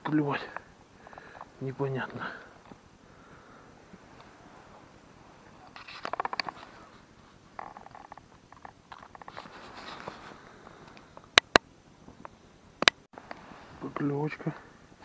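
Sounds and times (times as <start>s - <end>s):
rustling: 0.0s - 11.4s
sharp loud clicks: 11.3s - 11.7s.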